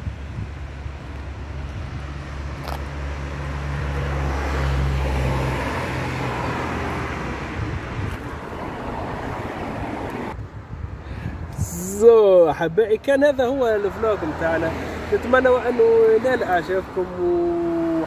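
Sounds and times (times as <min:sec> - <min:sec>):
steady low traffic rumble: 0:00.0 - 0:18.0
car passing: 0:00.6 - 0:10.4, 0:13.7 - 0:18.0.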